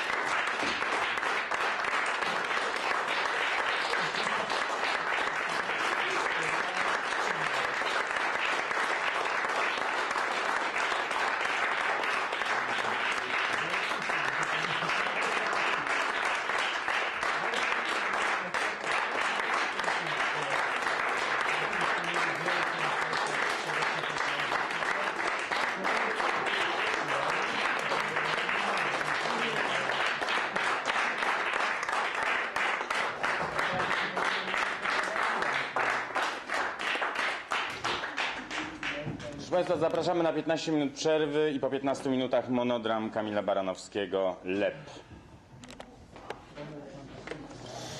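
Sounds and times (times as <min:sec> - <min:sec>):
audience applauding: 0:00.0 - 0:40.3.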